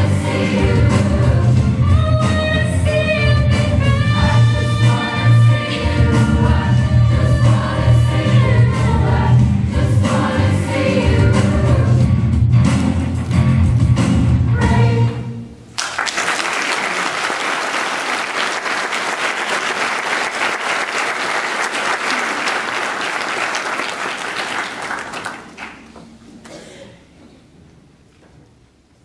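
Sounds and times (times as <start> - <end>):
choir singing: 0.0 - 12.0
audience applauding: 15.8 - 26.0.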